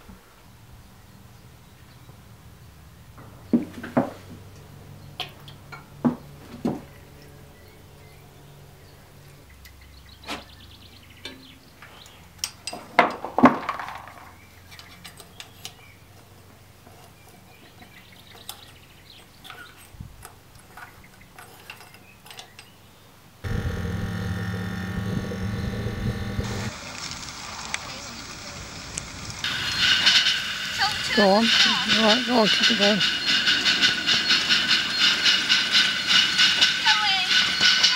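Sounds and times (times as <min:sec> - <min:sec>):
fan whirring hum: 0:14.3 - 0:27.4, 0:28.3 - 0:37.9
small metal clinks: 0:14.6 - 0:23.0.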